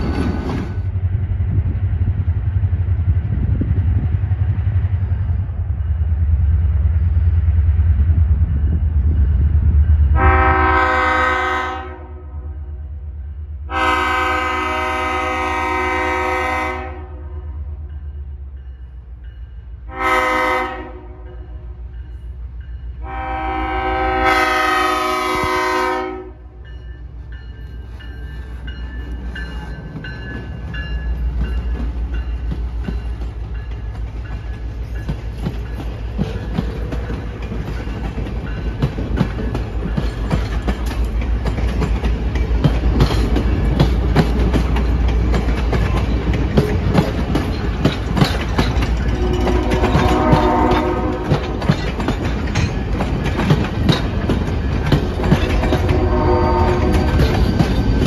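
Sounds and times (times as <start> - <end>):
train wheels clicking on rail joints: 0.0 - 2.4, 26.6 - 58.0
train engine rumble: 0.0 - 58.0
locomotive horn: 10.2 - 12.7, 13.7 - 17.7, 19.8 - 21.8, 23.0 - 26.6, 49.0 - 51.7, 55.6 - 57.4.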